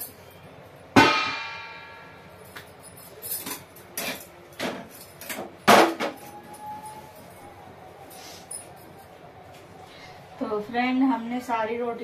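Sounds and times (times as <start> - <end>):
utensils knocking and clattering: 1.0 - 6.7.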